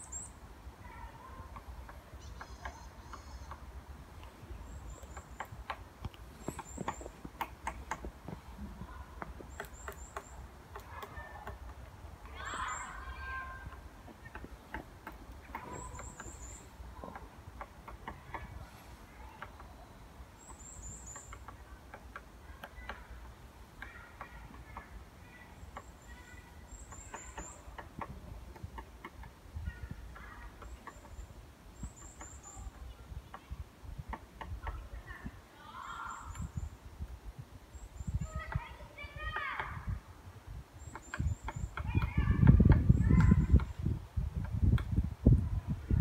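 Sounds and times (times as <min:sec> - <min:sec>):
woodpecker tapping: 0:01.4 - 0:18.6, 0:19.2 - 0:35.2, 0:40.8 - 0:45.0
high thin bird chirps: 0:02.1 - 0:03.7, 0:04.5 - 0:08.1, 0:08.9 - 0:11.6, 0:15.4 - 0:17.2, 0:23.8 - 0:28.0.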